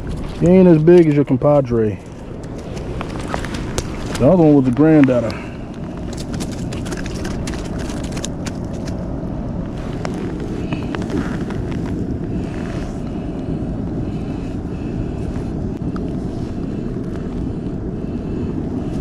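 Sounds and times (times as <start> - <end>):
low rumble: 0.0 - 19.0
clicks and rustles: 1.9 - 9.0.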